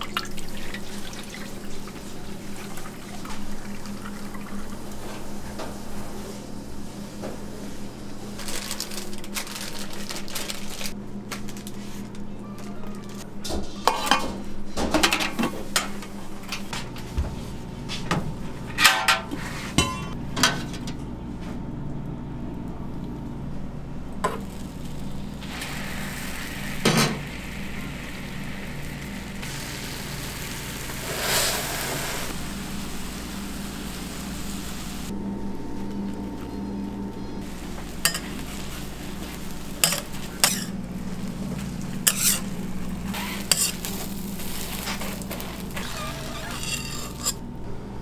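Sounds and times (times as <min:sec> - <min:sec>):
egg sizzling on griddle: 0:24.2 - 0:35.1, 0:37.4 - 0:47.4
spatula scraping griddle: 0:31.0 - 0:32.4, 0:38.0 - 0:40.8, 0:42.0 - 0:47.4
metal ladle clanking on pot: 0:39.8 - 0:40.7.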